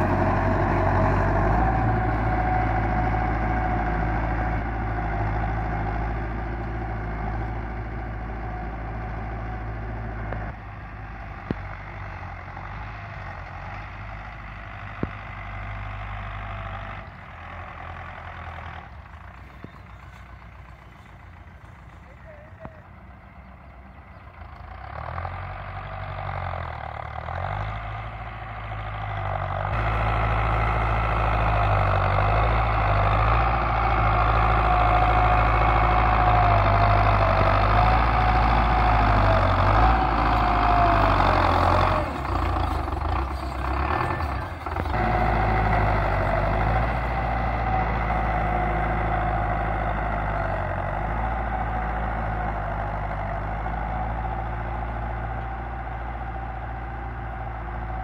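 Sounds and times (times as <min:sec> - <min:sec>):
tractor diesel engines under load: 0:00.0 - 0:58.0.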